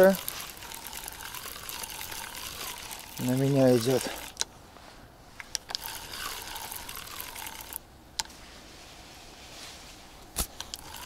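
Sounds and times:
fishing reel whirring: 0.0s - 4.4s, 5.6s - 7.8s, 10.6s - 11.0s
reel clicks: 0.0s - 4.5s, 5.4s - 8.3s, 10.4s - 11.0s.

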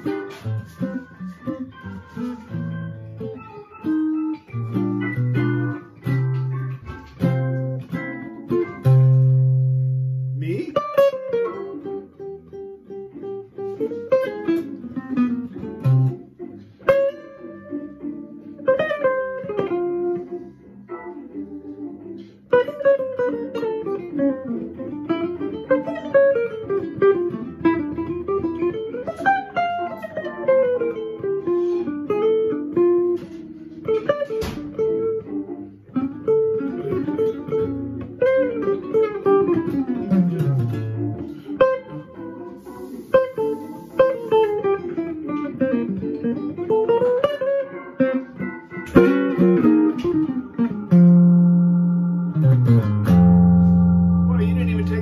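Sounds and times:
jazz electric guitar: 0.0s - 55.0s.

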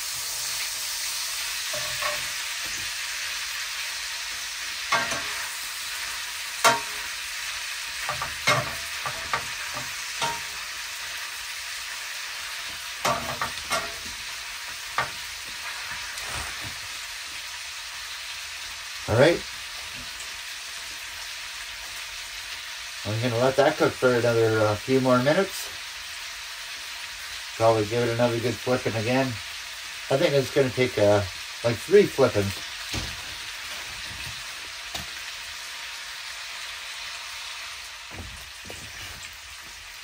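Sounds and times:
meat sizzling in a pan: 0.0s - 40.0s
utensil scraping a pan: 1.6s - 3.0s, 4.8s - 7.2s, 8.0s - 10.8s, 12.6s - 14.3s.

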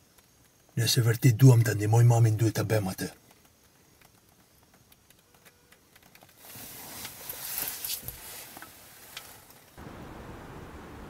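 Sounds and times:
clothing rustling: 6.4s - 9.8s.

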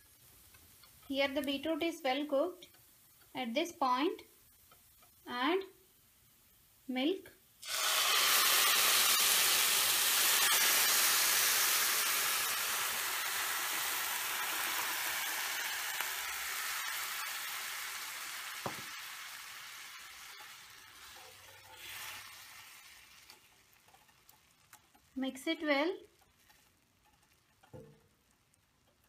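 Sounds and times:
milk sizzling in hot pan: 0.0s - 6.8s, 7.6s - 29.0s
spatula stirring: 19.6s - 25.2s, 26.0s - 29.0s.

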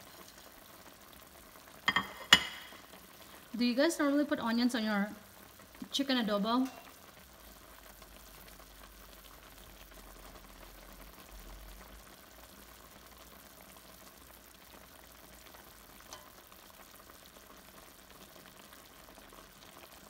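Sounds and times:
spoon stirring in pot: 0.0s - 0.7s, 1.8s - 2.8s, 6.6s - 6.9s, 16.0s - 16.4s
stew simmering and bubbling: 0.0s - 20.0s.

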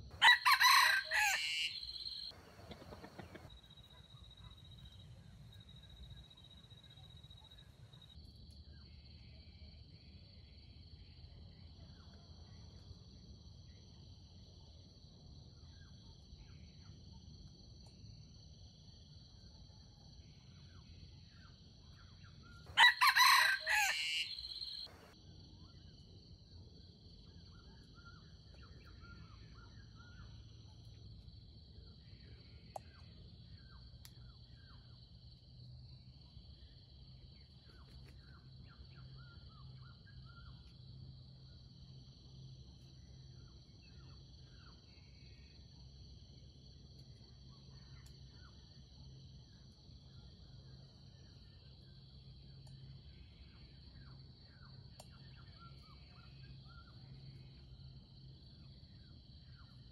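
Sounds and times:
rooster crowing: 0.2s - 3.5s, 22.7s - 25.2s.

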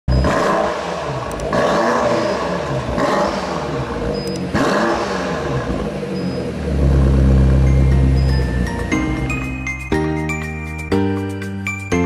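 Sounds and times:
car exhaust revving: 0.1s - 8.7s.

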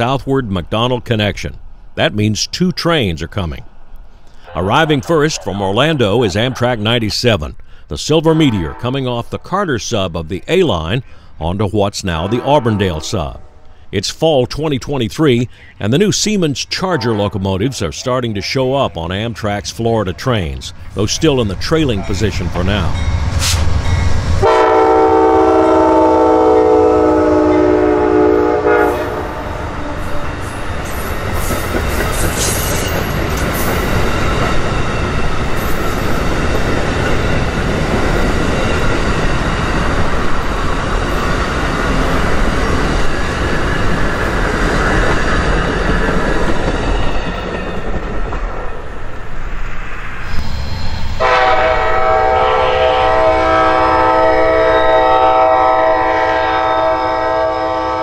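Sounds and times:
train rolling past: 0.0s - 58.0s
locomotive air horn: 24.4s - 30.1s, 51.2s - 58.0s.

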